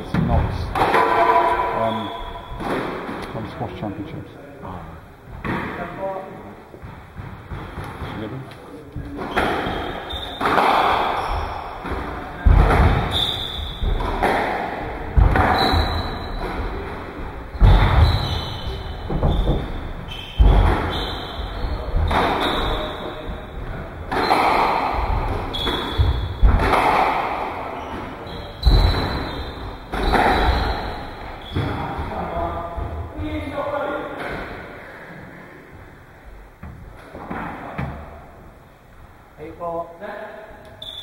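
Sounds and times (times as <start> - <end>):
squash ball hitting rackets and walls: 0.0 - 3.3, 5.3 - 8.4, 9.0 - 34.8.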